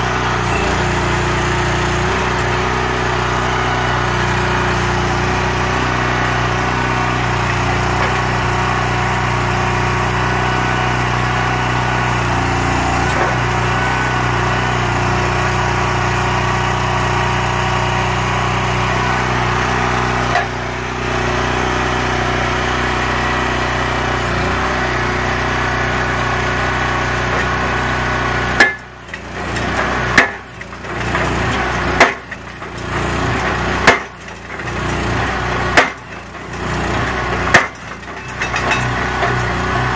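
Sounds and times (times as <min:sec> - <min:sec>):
small engine running: 0:00.0 - 0:39.9
hammer striking wooden post: 0:28.6 - 0:28.9, 0:30.1 - 0:30.5, 0:31.2 - 0:32.3, 0:33.8 - 0:34.2, 0:35.7 - 0:36.2, 0:37.4 - 0:39.4.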